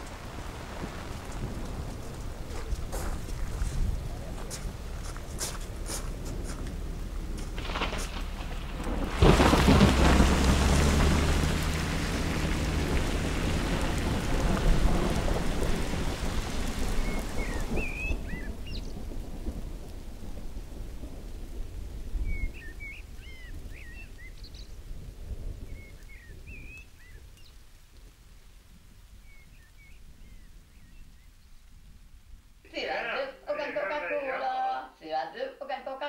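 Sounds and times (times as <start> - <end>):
tyres hissing on wet gravel: 0.0 - 27.8
vehicle engine pulling away: 4.1 - 17.5
birds chirping: 15.7 - 19.2, 22.2 - 24.9, 25.6 - 27.6, 29.2 - 31.8.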